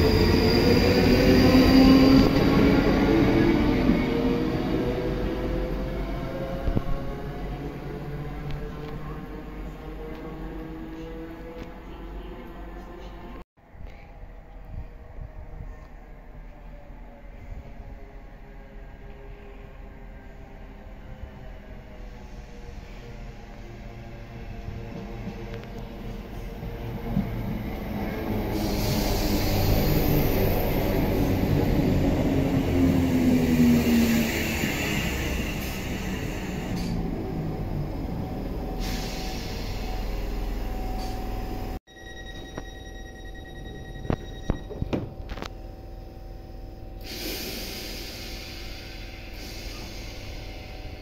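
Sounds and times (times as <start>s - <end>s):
train equipment hum: 0.0s - 51.0s
train wheels and air rushing: 21.7s - 41.8s, 47.0s - 51.0s
compressed air hiss: 28.5s - 30.0s, 47.0s - 50.6s.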